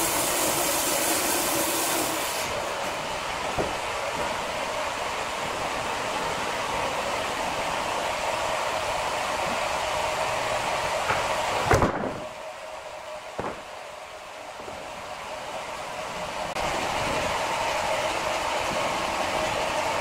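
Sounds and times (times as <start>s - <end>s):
band saw machinery whirring: 0.0s - 20.0s
heavy thud: 11.7s - 12.3s, 13.4s - 13.7s.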